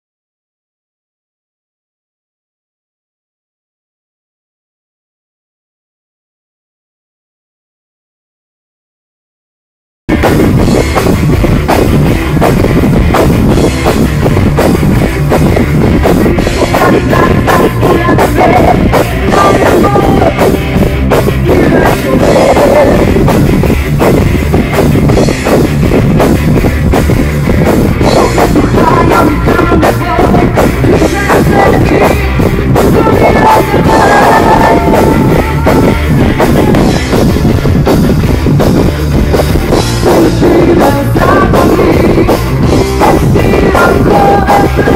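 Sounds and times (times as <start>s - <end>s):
rock band playing live: 10.1s - 44.9s.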